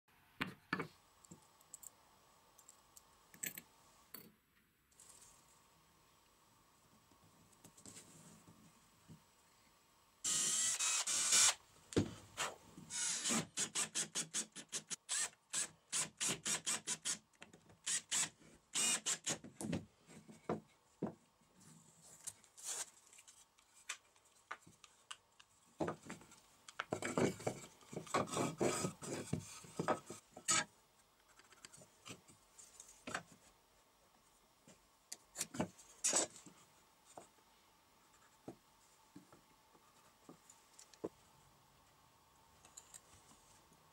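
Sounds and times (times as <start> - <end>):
cordless drill boring wood: 10.2 - 11.6, 12.9 - 17.2, 17.8 - 19.4.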